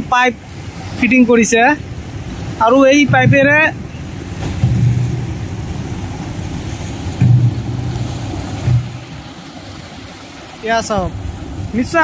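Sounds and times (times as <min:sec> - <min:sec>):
engine-driven pump humming: 0:00.0 - 0:12.0.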